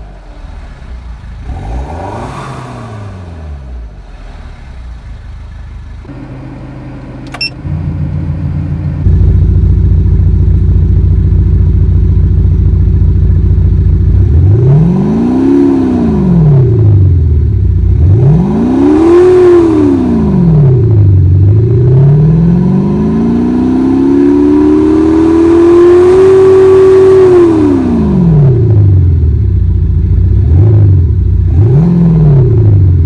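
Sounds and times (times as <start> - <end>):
synthetic car engine revving: 0.0 - 5.2, 17.8 - 29.0.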